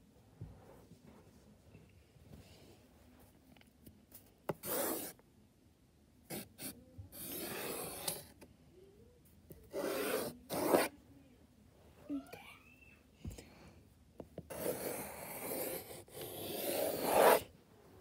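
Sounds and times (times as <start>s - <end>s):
pencil scratching on paper: 4.5s - 5.1s, 6.3s - 8.3s, 9.7s - 10.9s, 14.4s - 17.5s.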